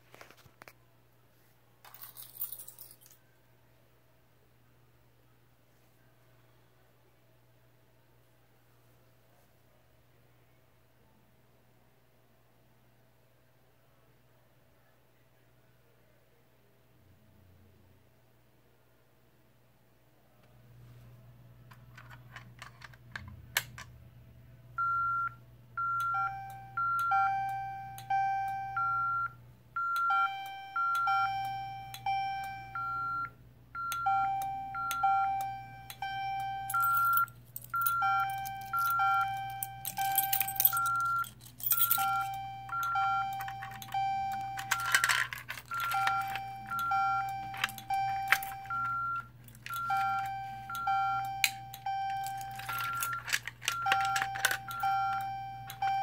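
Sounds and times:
fire alarm temporal tones: 0:24.8 - 0:41.2, 0:41.8 - 0:45.0, 0:45.7 - 0:56.0
high-pitched keypad beeps: 0:45.7 - 0:56.0.

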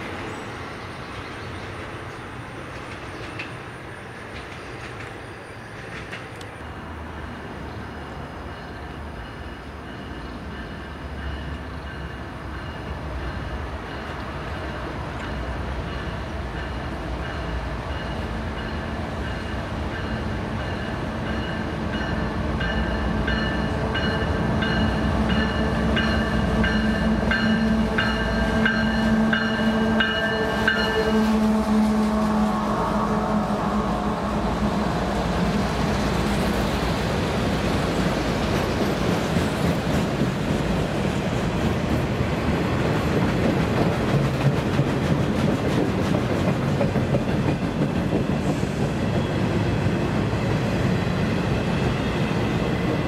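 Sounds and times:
train wheels clicking over track: 0:01.2 - 0:06.6, 0:36.1 - 0:49.5
freight train droning: 0:05.1 - 0:53.0.

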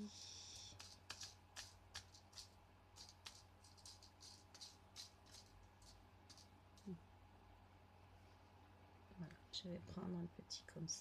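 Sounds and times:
beads clicking in plastic tray: 0:00.8 - 0:06.9.

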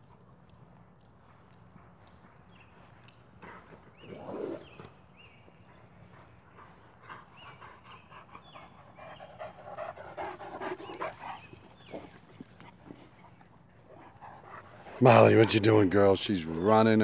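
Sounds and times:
large dog panting: 0:05.6 - 0:15.7.

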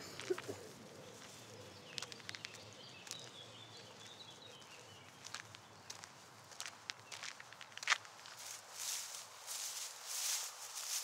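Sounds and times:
light clicks and crackles: 0:01.2 - 0:03.4
low outdoor hiss: 0:07.4 - 0:11.0.

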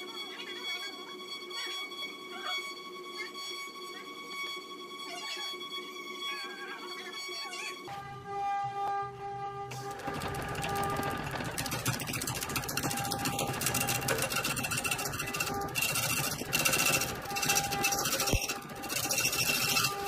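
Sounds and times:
lathe tool scraping wood: 0:09.5 - 0:20.0.

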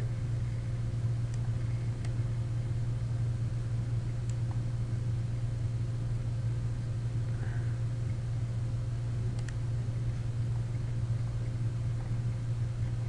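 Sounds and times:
low electrical hum: 0:00.0 - 0:13.0
computer mouse clicks: 0:09.4 - 0:09.6.

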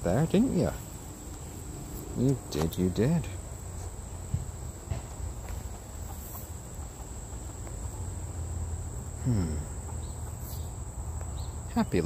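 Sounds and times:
crickets droning: 0:00.0 - 0:12.0
chicken clucking: 0:04.7 - 0:08.4, 0:09.0 - 0:10.8.

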